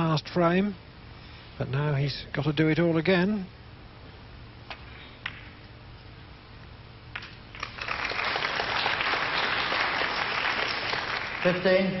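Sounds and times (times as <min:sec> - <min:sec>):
audience applause: 0:07.6 - 0:12.0.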